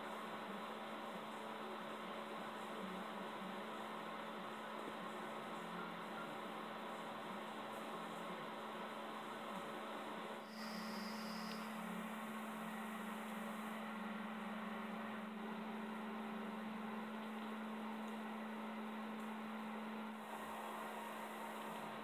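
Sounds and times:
electrical hum: 0.0s - 22.0s
background hiss: 10.4s - 14.6s.

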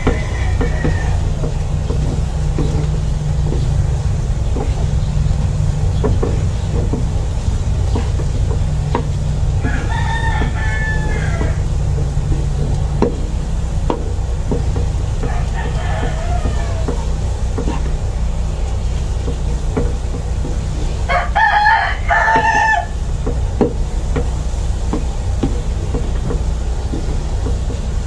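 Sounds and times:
rooster crowing: 0.0s - 1.9s, 9.5s - 12.0s, 15.1s - 17.8s, 21.0s - 23.1s
spatula scraping a frying pan: 0.0s - 21.0s.

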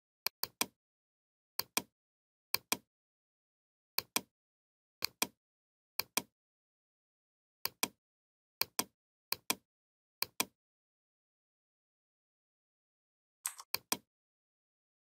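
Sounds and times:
mouse button clicking: 13.5s - 14.0s.

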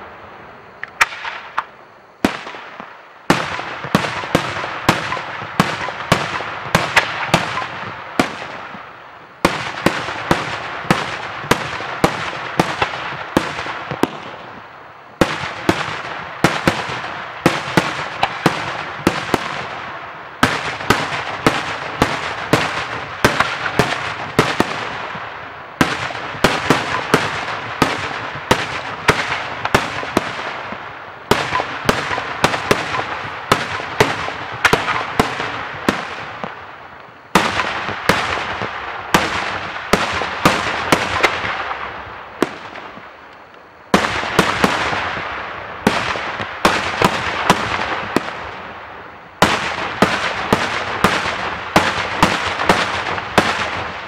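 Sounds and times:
fireworks crackling: 0.0s - 54.0s
firework shells bursting: 0.8s - 19.7s, 25.8s - 43.4s.

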